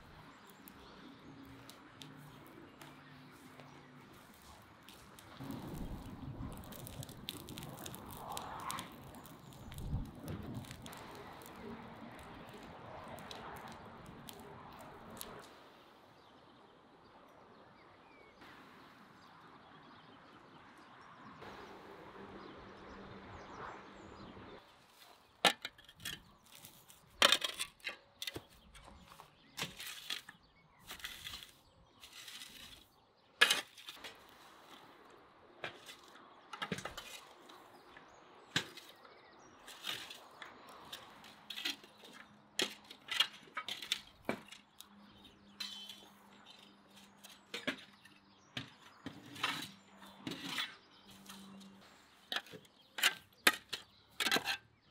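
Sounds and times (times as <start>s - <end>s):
spades scraping through ash: 25.0s - 34.8s, 39.6s - 44.8s, 45.4s - 54.7s.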